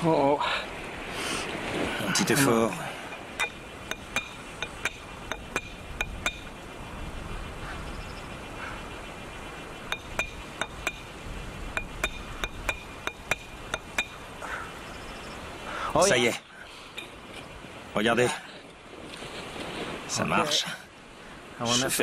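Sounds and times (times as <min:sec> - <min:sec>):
stone striking axe head: 0:03.1 - 0:06.5, 0:09.9 - 0:11.1, 0:11.7 - 0:14.2.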